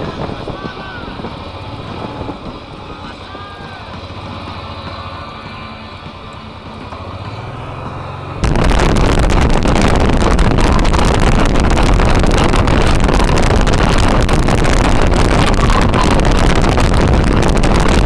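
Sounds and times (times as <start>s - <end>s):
wind buffeting on microphone: 0.0s - 4.3s, 8.4s - 18.0s.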